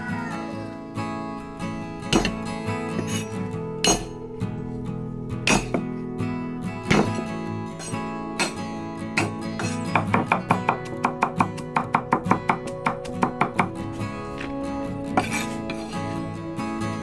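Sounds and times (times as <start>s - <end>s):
guitar music: 0.0s - 17.0s
cleaver chopping on wooden board: 2.1s - 2.4s, 6.9s - 7.2s, 9.2s - 13.8s.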